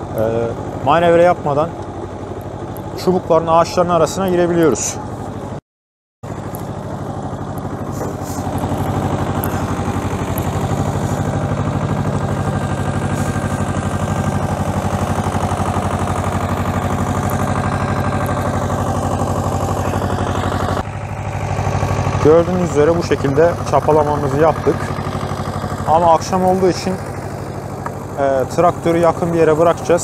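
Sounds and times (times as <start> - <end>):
tractor engine pulsing: 0.0 - 5.6, 6.2 - 30.0
rotavator churning soil: 6.3 - 30.0.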